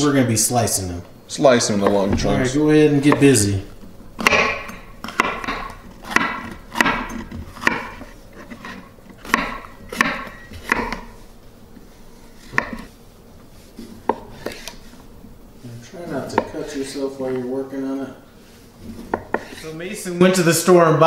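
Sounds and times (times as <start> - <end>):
knife knocking on wooden board: 4.2 - 8.1, 9.3 - 11.1, 12.5 - 12.8, 16.3 - 16.6.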